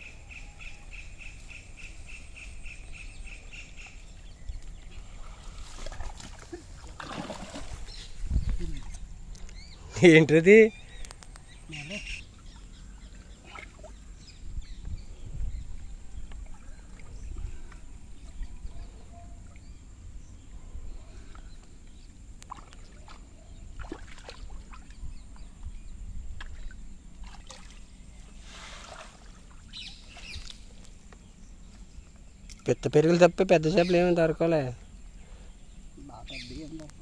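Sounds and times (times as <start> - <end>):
water sloshing and trickling: 3.8 - 9.5, 12.2 - 15.0, 15.7 - 19.8, 21.2 - 25.7, 26.3 - 31.4
water splashes: 5.0 - 9.0, 12.3 - 14.0, 22.4 - 25.0, 26.4 - 30.7.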